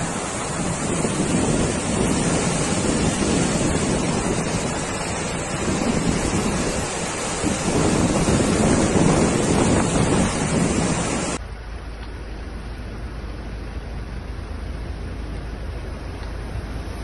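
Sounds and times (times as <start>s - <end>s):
wind buffeting microphone: 0.0s - 11.4s
floodwater rushing: 0.0s - 17.0s.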